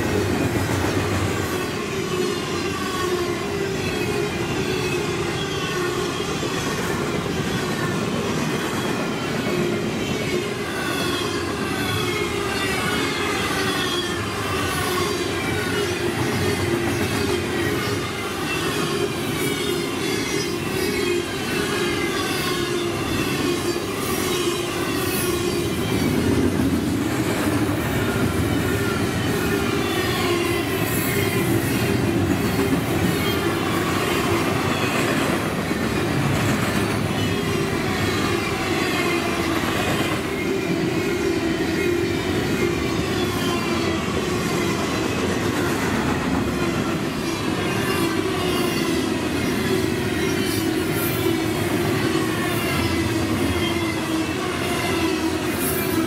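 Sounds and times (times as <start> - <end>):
steel wheels rolling on rail: 0.0 - 56.0.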